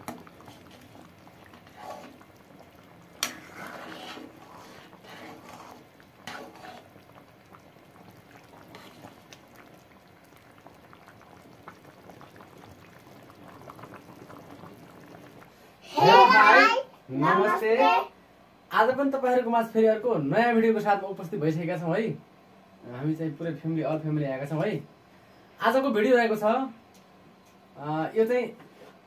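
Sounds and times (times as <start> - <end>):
gravy bubbling in a pan: 0.0 - 16.6.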